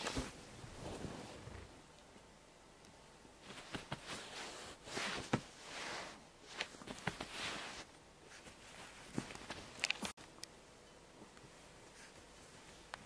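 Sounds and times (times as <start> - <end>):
duvet rustling: 0.0 - 1.8, 3.4 - 10.2.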